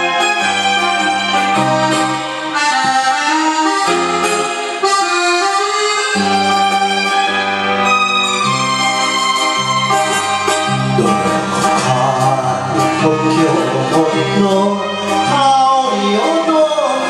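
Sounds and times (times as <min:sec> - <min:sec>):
instrumental backing music: 0:00.0 - 0:17.0
man singing into microphone: 0:10.9 - 0:17.0.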